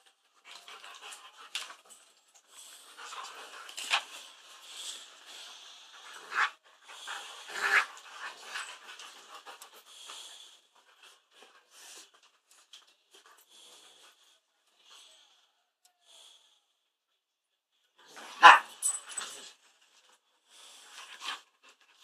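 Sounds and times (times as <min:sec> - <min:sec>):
dog panting: 0:06.7 - 0:12.1.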